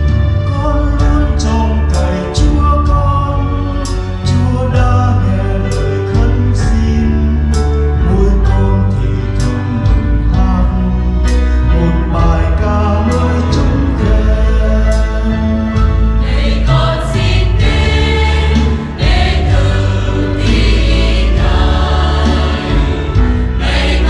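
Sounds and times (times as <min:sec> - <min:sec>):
instrumental accompaniment: 0:00.0 - 0:24.0
church choir singing: 0:11.8 - 0:24.0.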